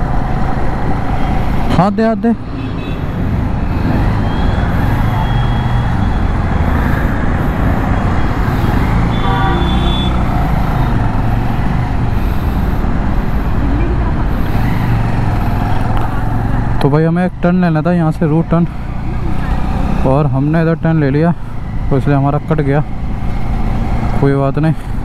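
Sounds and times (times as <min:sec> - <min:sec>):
vehicle horn: 0:09.0 - 0:10.3.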